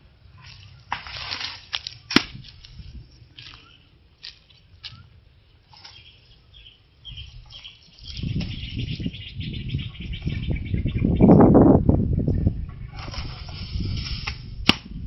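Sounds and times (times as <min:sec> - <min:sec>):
faint bird chirps: 0:03.5 - 0:04.0, 0:04.8 - 0:05.2, 0:05.8 - 0:11.4
wind buffeting microphone: 0:06.5 - 0:15.0
rustling hiss: 0:13.0 - 0:14.7.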